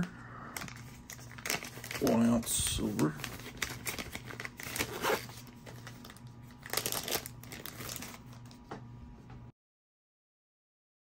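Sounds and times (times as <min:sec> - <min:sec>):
plastic bags crinkling: 0:00.6 - 0:08.6.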